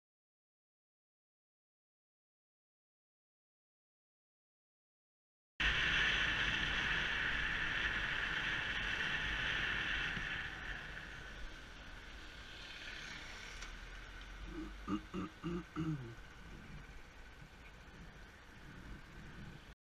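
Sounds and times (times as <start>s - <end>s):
motorcycle engine hum: 5.6s - 19.7s
wind and road noise: 5.6s - 19.8s.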